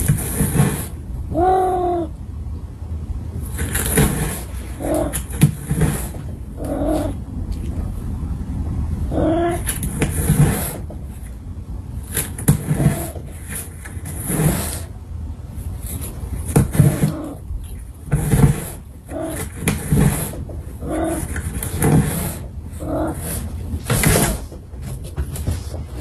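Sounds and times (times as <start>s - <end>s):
cat rubbing against cardboard: 0.0s - 1.7s, 3.4s - 8.0s, 9.1s - 26.0s
cat trilling and chirping: 1.3s - 2.2s, 4.7s - 7.3s, 9.1s - 10.7s.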